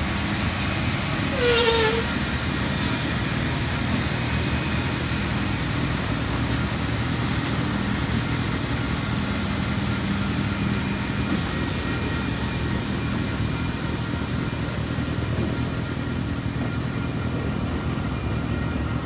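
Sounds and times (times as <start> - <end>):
locomotive engines humming: 0.0 - 19.0.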